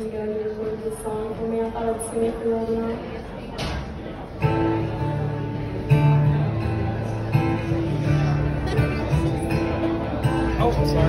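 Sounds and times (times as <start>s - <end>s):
acoustic guitar strumming: 4.4s - 11.0s.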